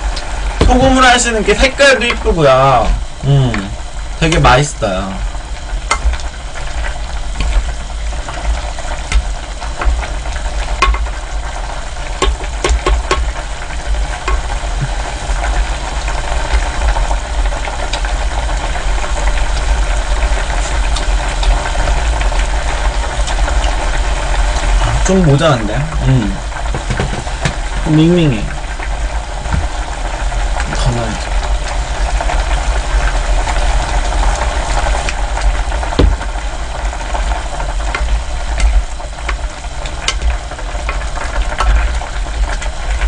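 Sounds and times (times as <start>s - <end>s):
soup bubbling in a pot: 0.0s - 43.0s
ladle knocking against pot: 10.8s - 11.1s, 12.2s - 13.3s.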